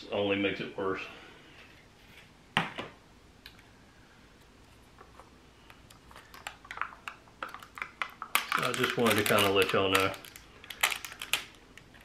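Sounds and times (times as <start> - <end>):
plastic cup clicks and crackles: 5.7 - 12.0.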